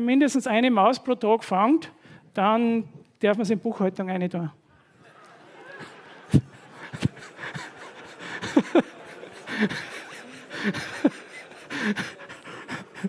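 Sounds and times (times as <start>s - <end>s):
audience laughing: 4.8s - 13.0s.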